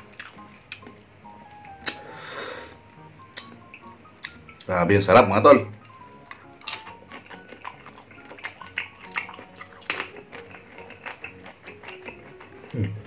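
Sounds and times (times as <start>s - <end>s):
faint background music: 0.0s - 13.0s
wet mouth clicks: 1.8s - 2.0s, 3.2s - 4.7s, 5.9s - 13.0s
crisp chewing crunches: 5.8s - 13.0s.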